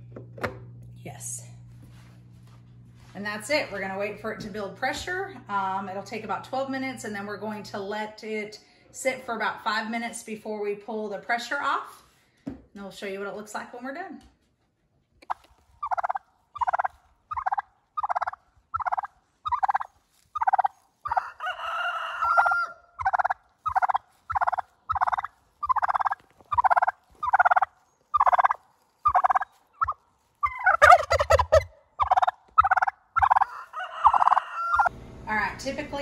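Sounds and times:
turkey calling: 0:15.2 - 0:34.9.

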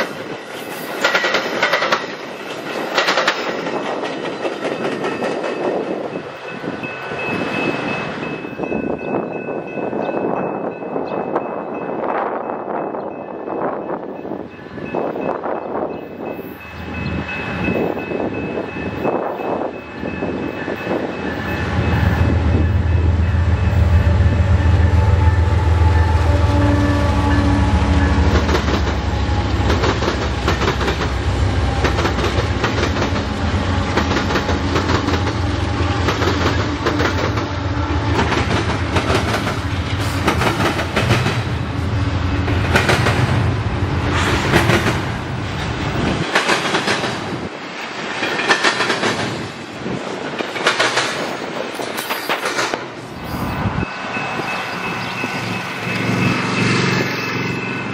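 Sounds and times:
train wheels clacking on rails: 0:00.0 - 0:11.8, 0:27.7 - 0:53.0
locomotive engine rumble: 0:20.4 - 0:46.3.

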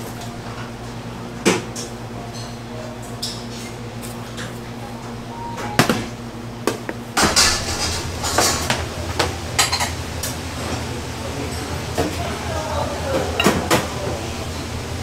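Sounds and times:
low kitchen hum: 0:00.0 - 0:15.0
steel bowls and utensils clinking: 0:10.7 - 0:14.5.

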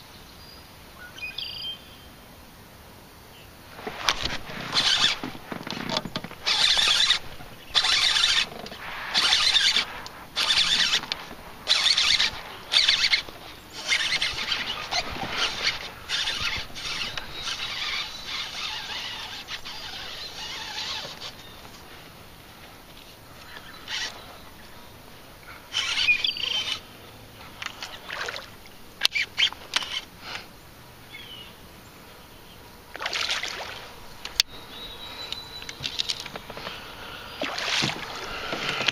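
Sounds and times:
canoe paddle strokes in water: 0:03.7 - 0:29.9, 0:35.3 - 0:38.9
water splashes: 0:27.6 - 0:28.8, 0:32.9 - 0:33.9, 0:37.4 - 0:38.9.

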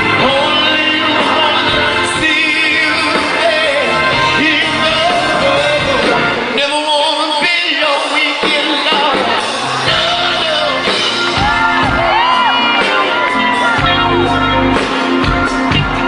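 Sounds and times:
man singing into a microphone: 0:00.0 - 0:11.8
bass: 0:00.0 - 0:16.0
organ chords: 0:00.0 - 0:16.0.

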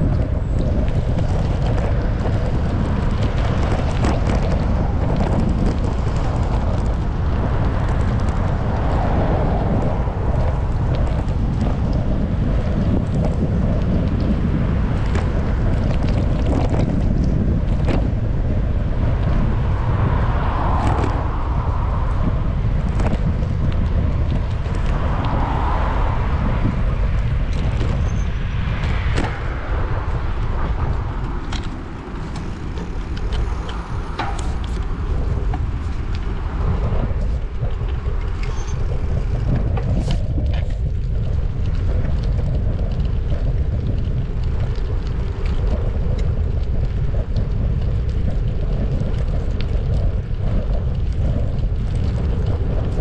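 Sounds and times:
road traffic: 0:00.0 - 0:53.0
wind buffeting microphone: 0:00.0 - 0:53.0.

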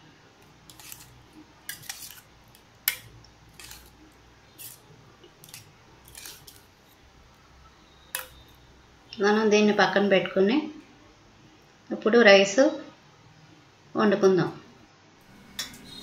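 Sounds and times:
soft wet scrapes: 0:00.7 - 0:07.0
spoon clinking against steel bowl: 0:02.9 - 0:03.9, 0:08.1 - 0:08.6, 0:15.4 - 0:16.0.

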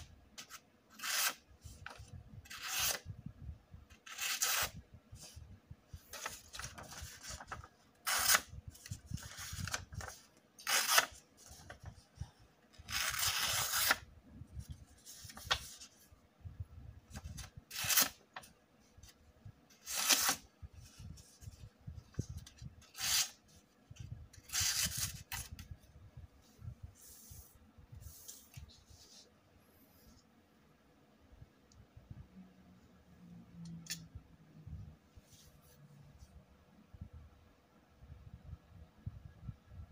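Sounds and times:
paper rustling: 0:06.0 - 0:12.2, 0:12.8 - 0:16.1.

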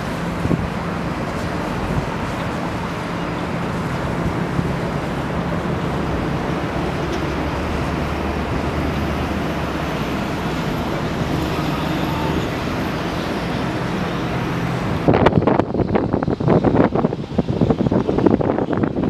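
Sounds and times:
boat engine drone: 0:00.0 - 0:19.0
rushing boat wake: 0:00.0 - 0:19.0
wind buffeting microphone: 0:00.0 - 0:19.0.

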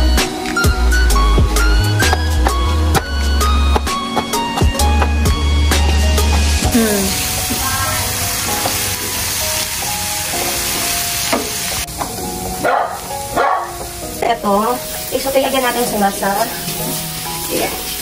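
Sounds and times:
background music with held tones: 0:00.0 - 0:18.0
garlic and shrimp sizzling in oil: 0:05.8 - 0:18.0.

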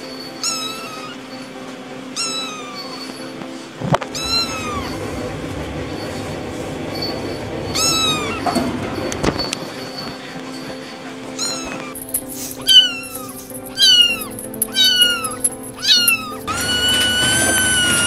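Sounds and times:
kitten meowing: 0:02.2 - 0:02.9, 0:04.2 - 0:05.0, 0:12.6 - 0:18.0.

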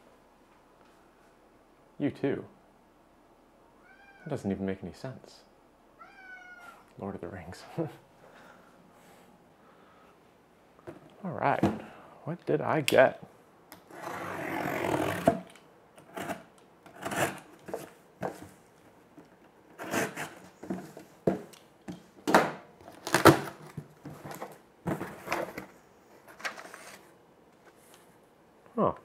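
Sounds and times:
packing tape tearing: 0:22.8 - 0:24.5.

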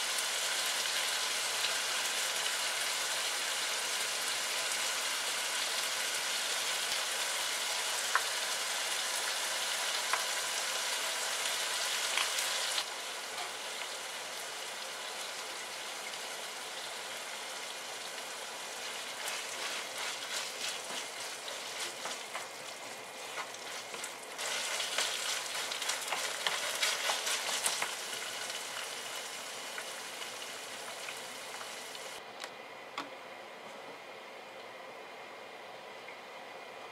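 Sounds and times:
meat sizzling in a frying pan: 0:00.0 - 0:32.2
spatula scraping a pan: 0:18.8 - 0:27.9.

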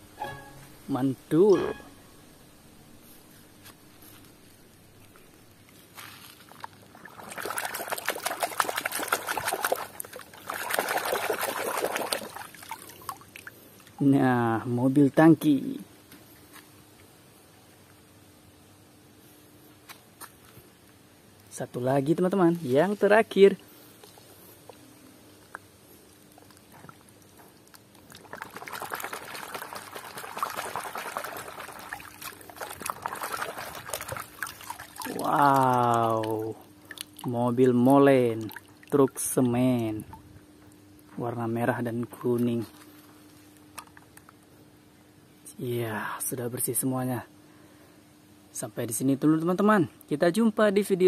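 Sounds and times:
water splashing in a basin: 0:06.4 - 0:14.0, 0:24.0 - 0:40.2
water dripping: 0:25.4 - 0:41.1.

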